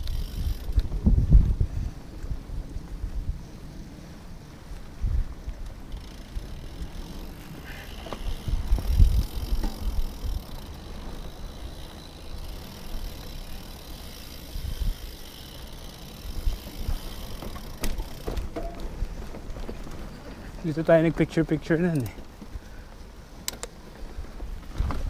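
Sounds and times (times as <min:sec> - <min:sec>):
wind rumble on microphone: 0:00.0 - 0:11.7, 0:14.5 - 0:15.2, 0:24.0 - 0:25.0
bike tyres crunching on dirt: 0:00.0 - 0:25.0
bike parts knocking and rattling: 0:05.6 - 0:20.6.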